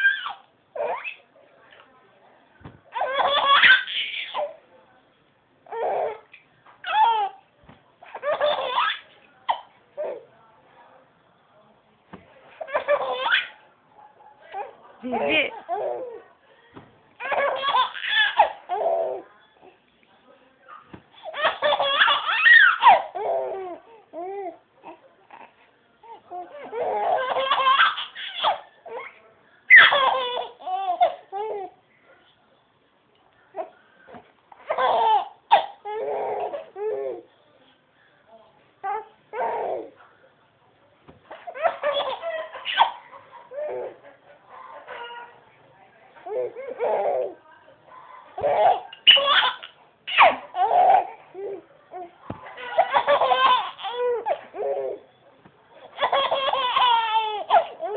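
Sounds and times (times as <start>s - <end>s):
baby laughing: 3.0s - 4.5s, 8.1s - 9.6s, 12.7s - 13.6s, 17.2s - 19.2s, 21.2s - 23.6s, 26.7s - 29.1s, 29.7s - 31.2s, 34.7s - 37.2s, 41.3s - 44.0s, 48.4s - 51.6s, 52.6s - 55.0s, 55.9s - 57.9s.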